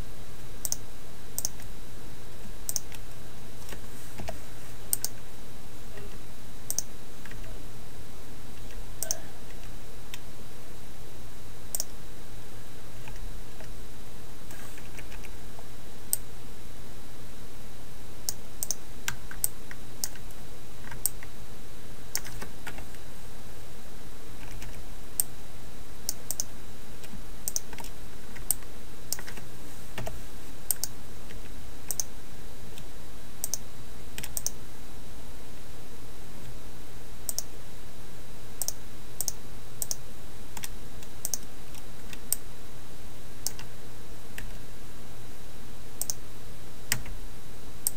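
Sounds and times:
steady low hum: 0:00.0 - 0:47.9
keyboard and mouse clicks: 0:01.4 - 0:01.7, 0:02.7 - 0:03.0, 0:03.7 - 0:05.2, 0:06.7 - 0:07.5, 0:18.3 - 0:20.2, 0:26.2 - 0:29.4, 0:30.0 - 0:30.9, 0:31.9 - 0:32.1, 0:34.2 - 0:34.6, 0:37.3 - 0:37.5, 0:40.6 - 0:42.4.

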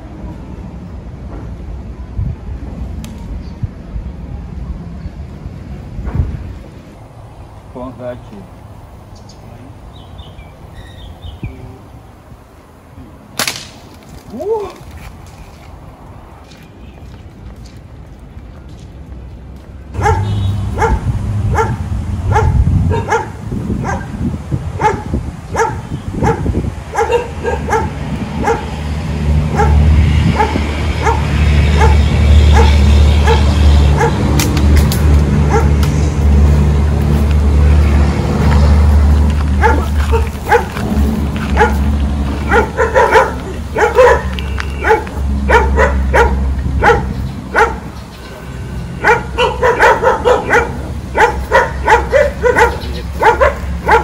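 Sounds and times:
dogs barking and yipping: 0:20.0 - 0:34.4, 0:35.4 - 0:35.8, 0:38.4 - 0:54.0.

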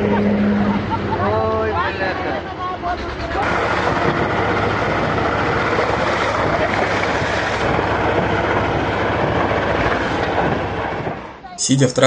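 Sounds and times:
tractor engine running: 0:00.0 - 0:11.4
wind buffeting microphone: 0:02.8 - 0:11.4.

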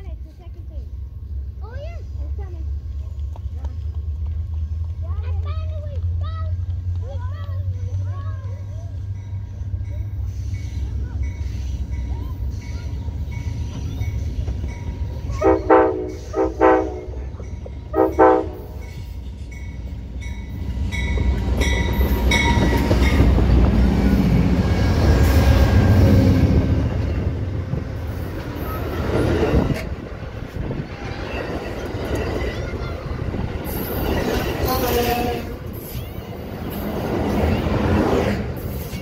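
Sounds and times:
train rumbling past: 0:00.0 - 0:39.0
wheels clattering on rails: 0:01.6 - 0:39.0
train horn blasts: 0:15.3 - 0:17.3, 0:17.9 - 0:18.9.

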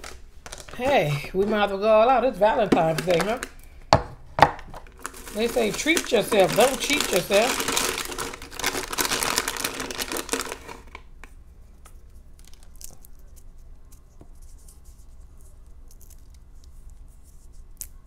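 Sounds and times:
plastic package crinkling: 0:00.0 - 0:01.7, 0:02.8 - 0:03.8, 0:04.6 - 0:13.5.

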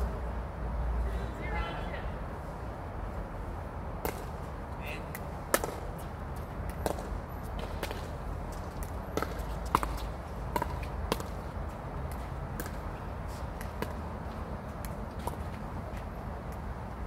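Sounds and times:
balls bouncing on court: 0:05.1 - 0:12.8.

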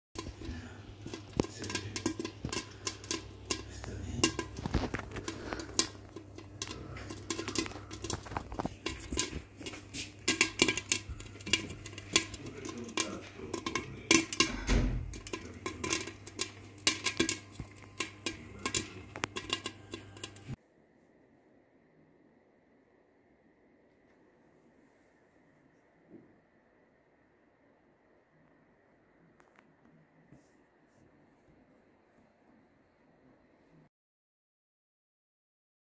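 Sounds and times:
popcorn popping in a pot: 0:00.2 - 0:20.6
steady low hum: 0:00.2 - 0:33.9.

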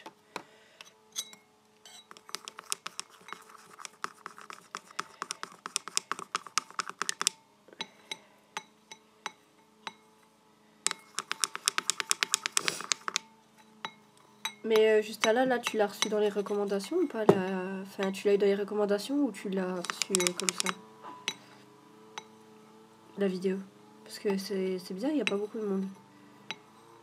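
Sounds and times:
small hard objects clicking: 0:05.0 - 0:07.4, 0:10.9 - 0:13.2, 0:19.8 - 0:20.8.

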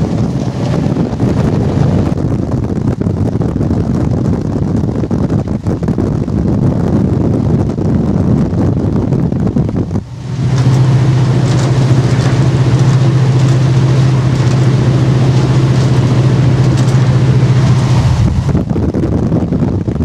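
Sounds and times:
rail noise: 0:00.0 - 0:03.0, 0:09.6 - 0:18.9
locomotive diesel engine drone: 0:00.0 - 0:20.0
rushing wind: 0:00.0 - 0:20.0.

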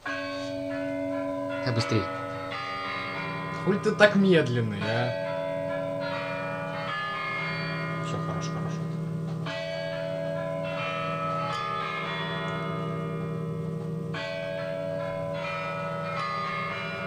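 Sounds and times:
bells ringing: 0:00.0 - 0:17.0.

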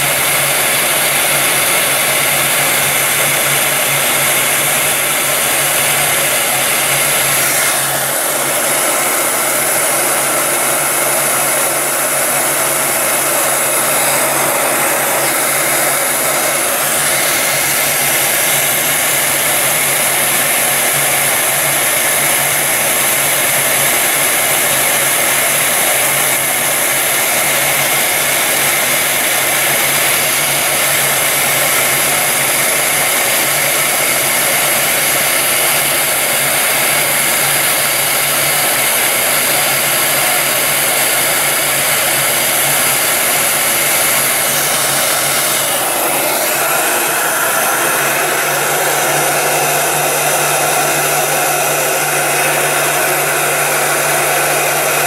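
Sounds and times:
heat gun blowing air: 0:00.0 - 0:55.0.

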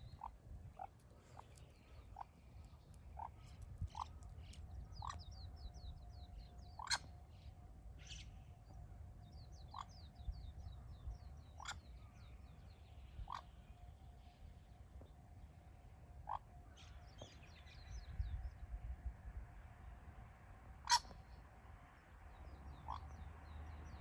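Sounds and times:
small birds chirping: 0:00.0 - 0:08.4.

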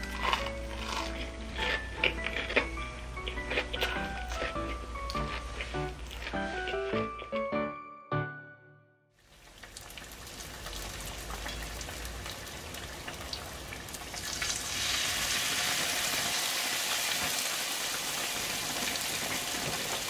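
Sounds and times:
hot oil sizzling and crackling: 0:09.2 - 0:20.0.

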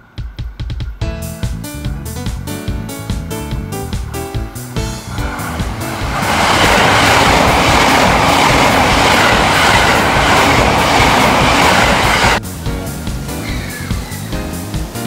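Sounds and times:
train running noise: 0:03.3 - 0:15.0
wheels clacking over rail joints: 0:04.8 - 0:12.4.

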